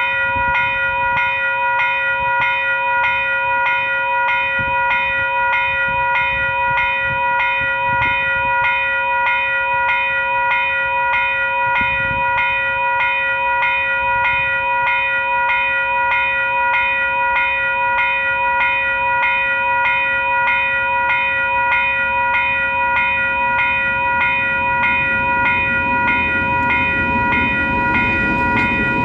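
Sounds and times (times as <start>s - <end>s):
level crossing alarm bells: 0.0s - 29.0s
locomotive engine and wheel rumble: 21.4s - 29.0s.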